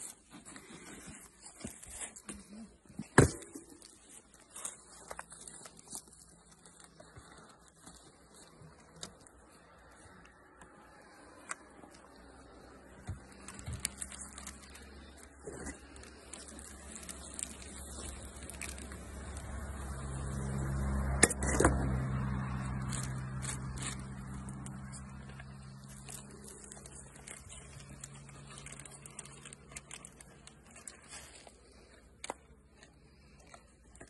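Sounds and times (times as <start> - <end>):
low motor hum: 8.1 - 34.0
plastic bag crinkling: 11.0 - 20.8, 22.1 - 34.0.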